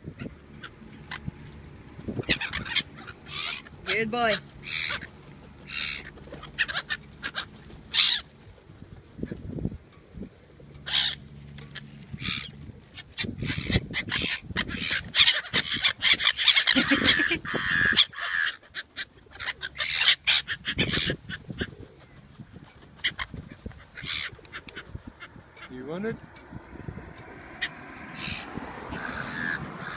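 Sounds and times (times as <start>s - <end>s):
gulls calling: 0.0s - 29.9s.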